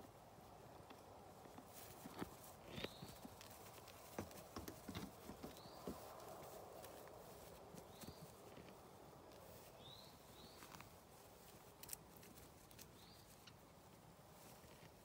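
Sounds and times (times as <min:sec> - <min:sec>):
goat hooves tapping on straw and wood: 0:00.7 - 0:15.0
bird chirping: 0:02.7 - 0:03.5, 0:04.2 - 0:06.3, 0:07.8 - 0:08.5, 0:09.7 - 0:10.9, 0:12.9 - 0:13.5.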